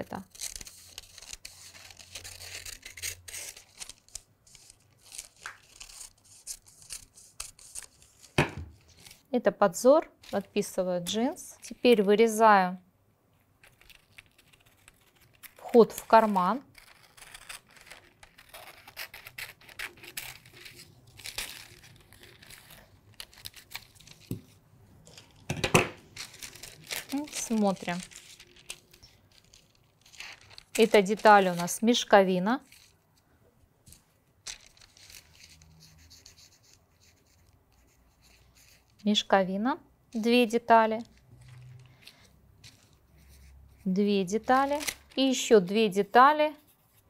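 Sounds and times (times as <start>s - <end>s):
scissors snipping paper: 0.0s - 8.3s, 13.6s - 24.5s, 26.2s - 31.8s, 44.4s - 45.4s
paper rustling: 0.3s - 9.3s, 13.6s - 33.0s, 33.9s - 39.1s, 40.9s - 45.5s
thump: 8.4s - 8.8s.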